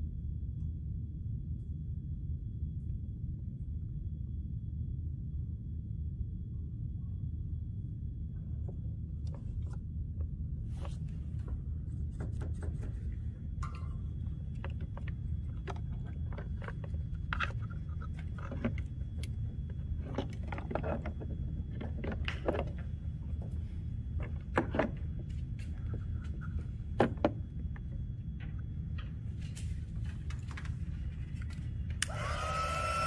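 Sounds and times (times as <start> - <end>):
steady low hum: 0.0 - 33.0
hands handling wires and plastic: 13.6 - 32.2.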